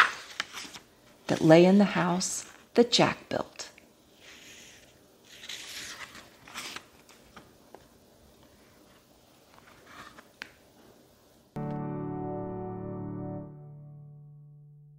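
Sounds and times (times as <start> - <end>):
paper pages rustling: 0.0 - 2.7, 4.2 - 10.6.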